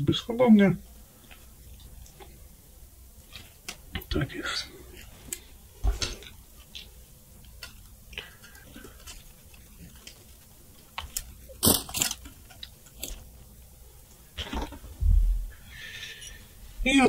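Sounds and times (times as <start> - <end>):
dry twigs crackling and rustling: 4.9 - 13.6.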